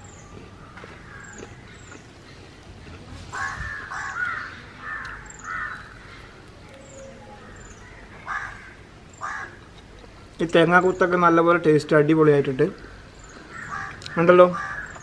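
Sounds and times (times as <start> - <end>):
crows cawing: 3.3 - 6.3, 7.3 - 9.7, 12.7 - 15.0.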